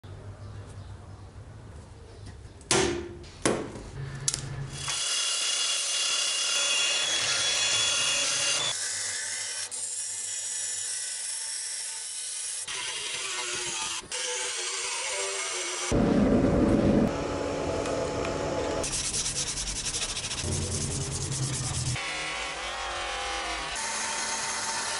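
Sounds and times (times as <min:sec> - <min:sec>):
belt grinder grinding steel: 0:04.8 - 0:11.0, 0:11.9 - 0:15.9.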